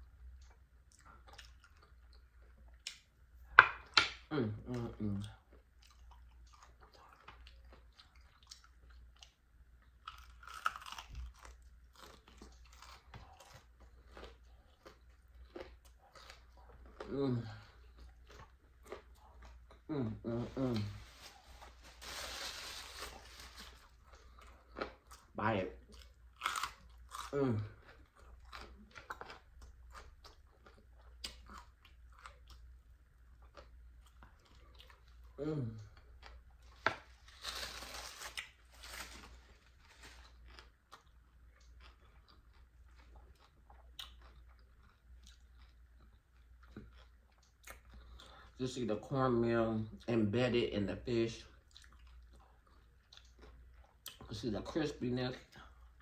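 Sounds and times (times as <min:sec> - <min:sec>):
crunchy bite into fried fish: 0:10.0 - 0:13.6
crunchy chewing: 0:10.0 - 0:19.9, 0:21.3 - 0:32.7, 0:33.4 - 0:48.4.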